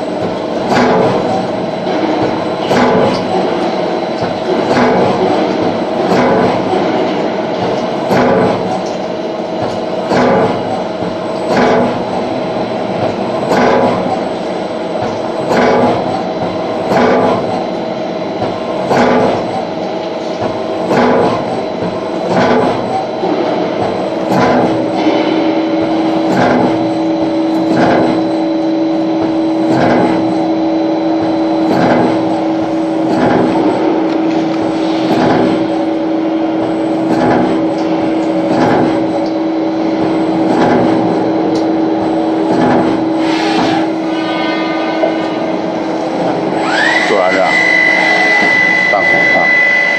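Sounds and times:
lathe machine hum: 0.0s - 49.9s
regular machine knock: 0.2s - 9.0s, 9.6s - 12.2s, 13.0s - 14.3s, 15.0s - 17.7s, 18.4s - 19.7s, 20.4s - 28.3s, 31.2s - 34.0s, 36.6s - 39.3s, 40.0s - 41.7s, 42.4s - 43.8s.

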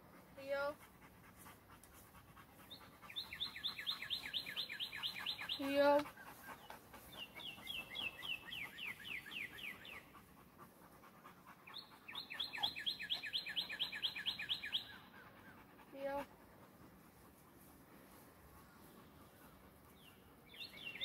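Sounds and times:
songbird singing: 2.4s - 16.1s, 18.1s - 21.0s.

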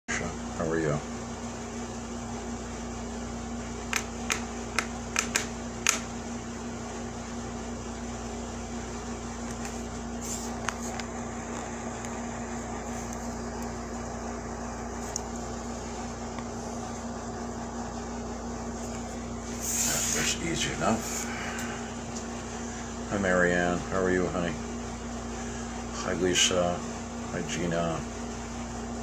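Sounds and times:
steady machine hum: 0.1s - 29.0s
sharp clicks: 3.9s - 6.1s.

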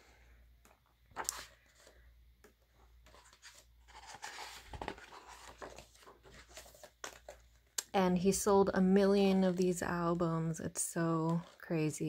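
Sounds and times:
album pages turning: 1.0s - 7.8s.

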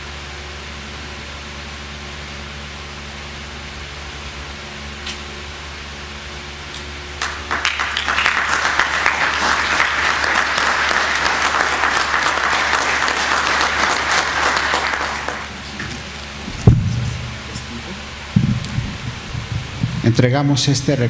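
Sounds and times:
audience applauding: 7.2s - 16.2s.

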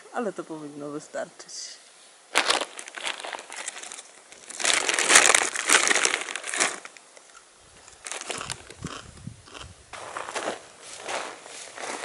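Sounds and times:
bag of chips crinkling: 2.3s - 7.0s, 8.0s - 9.0s.

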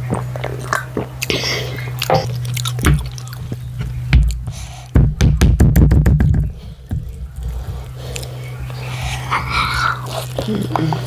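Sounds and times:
steady low hum: 0.0s - 11.0s
clicks and thumps: 2.2s - 7.8s.

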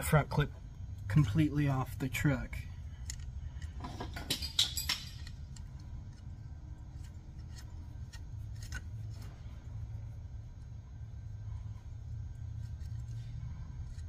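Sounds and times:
low background rumble: 0.0s - 4.2s, 4.9s - 14.0s
metal tools clicking: 3.0s - 5.8s.

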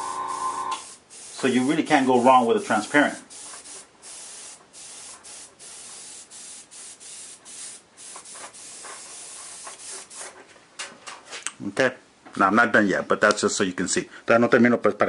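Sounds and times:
airbrush spraying hiss: 0.0s - 10.4s.

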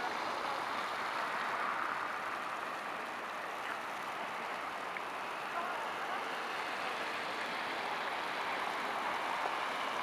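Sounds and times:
distant road traffic: 0.0s - 10.0s.

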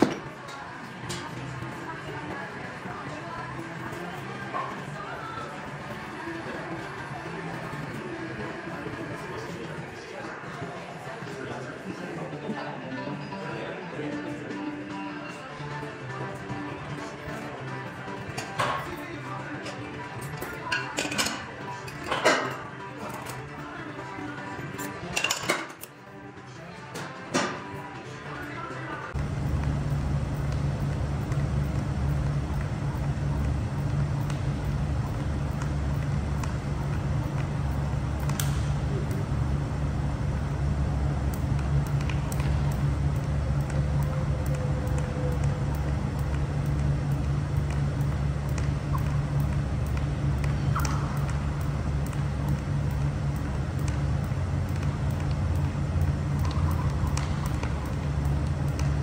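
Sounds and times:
large fans rumbling: 0.0s - 59.0s.

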